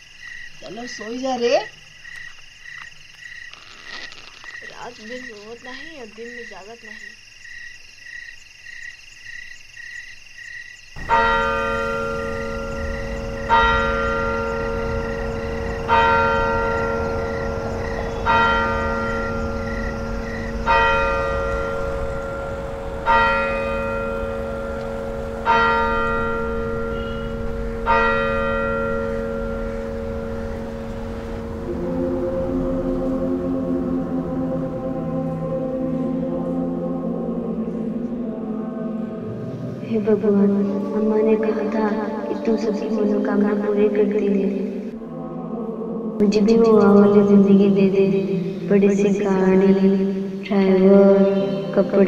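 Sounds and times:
frogs croaking: 0.0s - 52.0s
church bell tolling: 11.0s - 34.3s.

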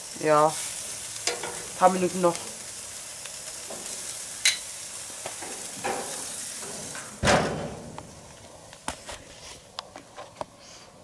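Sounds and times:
steaks sizzling on a grill: 0.0s - 7.2s
loud thump: 7.2s - 8.1s.

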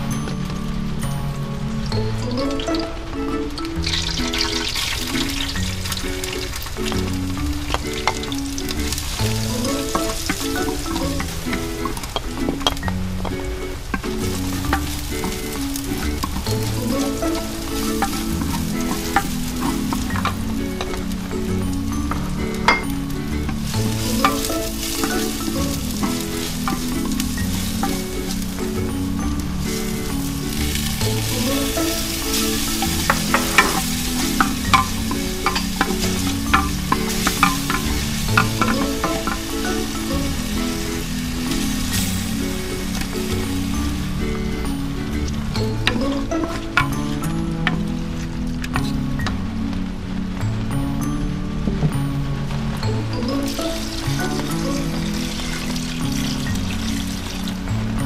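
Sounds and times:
garlic and onions sizzling in oil: 0.0s - 58.0s
soft background music: 0.0s - 58.0s
wooden spoon scraping a pot: 7.7s - 21.1s, 23.5s - 43.8s
spoon ticking against pot: 29.8s - 40.8s.

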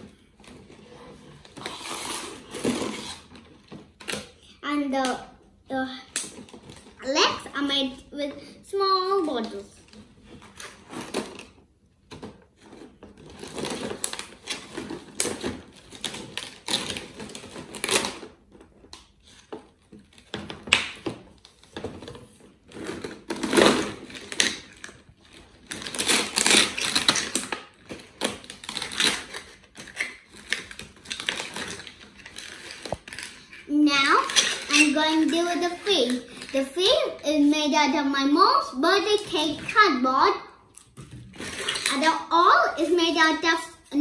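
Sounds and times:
plastic bottles crinkling: 9.0s - 37.2s, 40.7s - 42.2s.

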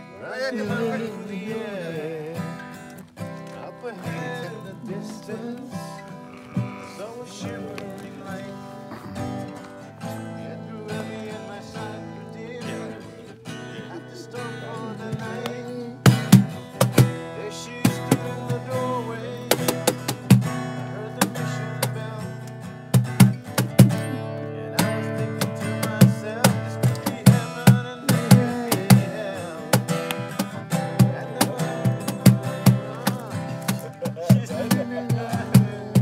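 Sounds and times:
acoustic guitar strummed: 0.0s - 36.0s
cajon drum: 14.8s - 22.2s, 22.8s - 24.2s, 24.8s - 36.0s.

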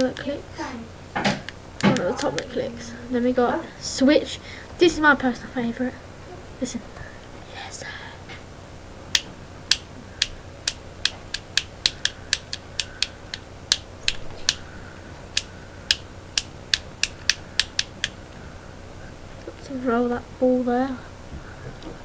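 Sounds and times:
plastic toggle switch clicking: 9.1s - 14.6s, 15.4s - 18.2s.

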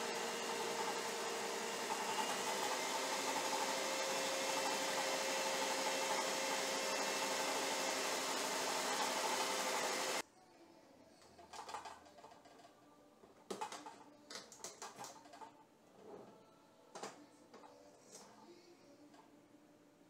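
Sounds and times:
stand mixer whisking: 0.0s - 10.2s.

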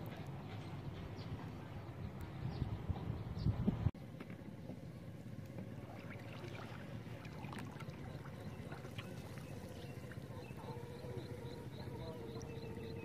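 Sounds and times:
faint steady hum: 3.9s - 13.0s
water trickling and splashing: 5.4s - 13.0s.

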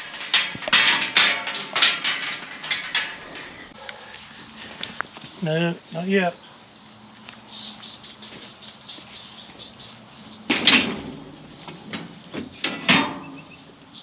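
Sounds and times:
loud metal clatters: 0.0s - 3.8s, 10.4s - 13.8s
metal gates rattling and clanging: 0.0s - 3.8s, 10.3s - 14.0s.

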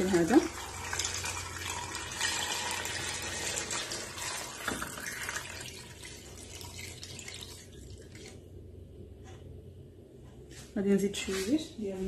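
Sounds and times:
water pouring into a pot: 0.0s - 8.4s.

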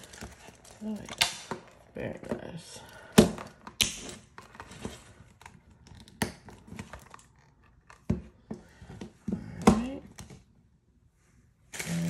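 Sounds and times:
stiff plastic crinkling: 0.0s - 2.6s.

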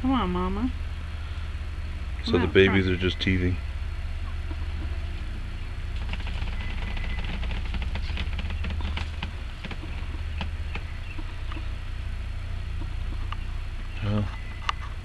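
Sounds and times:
steady low hum: 0.0s - 15.0s
animals chewing branches: 4.2s - 15.0s
twigs crackling and snapping: 5.9s - 11.7s.

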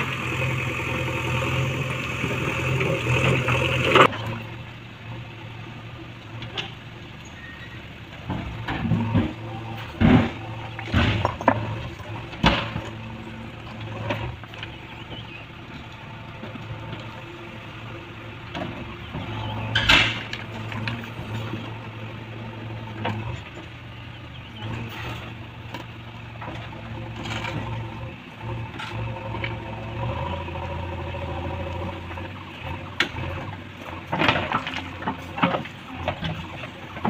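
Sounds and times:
diesel engine running: 0.0s - 37.0s
rock and steel clattering: 8.2s - 15.9s.

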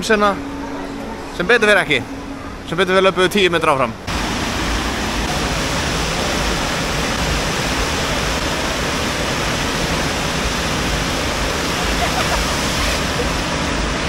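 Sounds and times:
water rushing: 3.6s - 14.0s.

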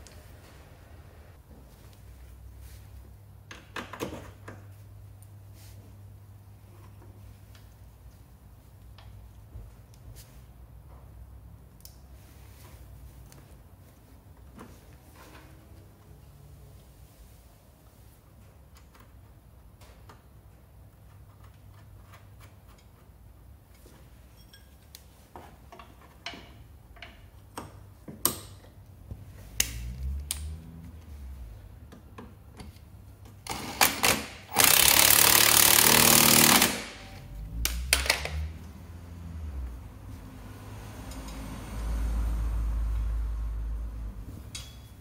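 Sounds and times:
hand tools clicking on engine: 33.4s - 37.0s
power tool burst: 33.5s - 37.2s.

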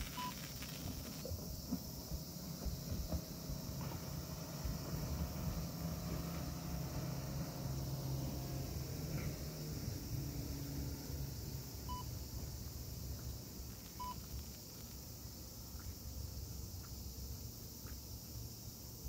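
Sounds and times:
cicadas droning: 0.0s - 19.0s
low city rumble: 0.0s - 19.0s
short electronic beeps: 0.1s - 0.4s, 14.0s - 14.2s.

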